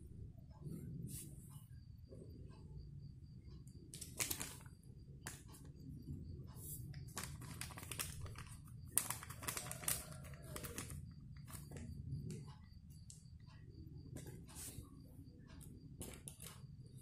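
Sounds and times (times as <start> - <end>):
steady low hum: 0.0 - 9.6, 10.7 - 17.0
plastic sachet crinkling and tearing: 4.0 - 4.5, 7.1 - 11.0.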